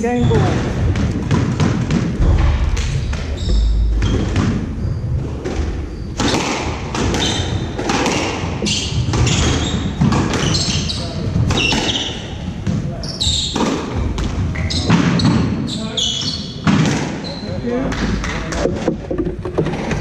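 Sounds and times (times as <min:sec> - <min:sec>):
squash ball hitting rackets and walls: 0:00.1 - 0:17.3
dull thuds: 0:00.2 - 0:07.8
shoes squeaking on wooden floor: 0:03.3 - 0:16.6.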